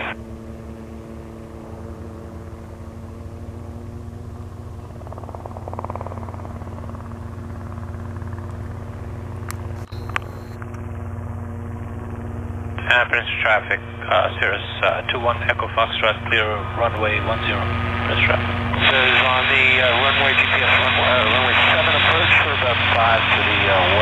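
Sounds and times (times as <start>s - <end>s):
helicopter hum: 0.0s - 24.0s
short clicks: 9.5s - 10.8s.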